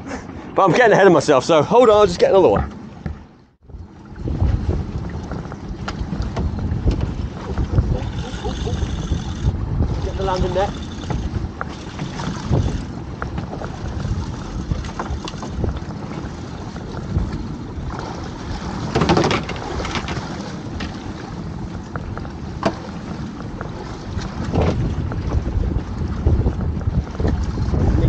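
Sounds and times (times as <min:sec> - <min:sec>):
sea noise: 0:00.0 - 0:28.0
wind buffeting microphone: 0:01.6 - 0:28.0.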